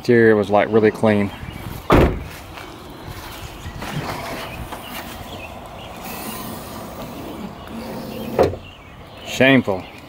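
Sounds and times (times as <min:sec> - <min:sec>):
low outdoor noise: 0:00.0 - 0:10.0
car hatch thumping shut: 0:01.9 - 0:02.3, 0:08.2 - 0:08.7.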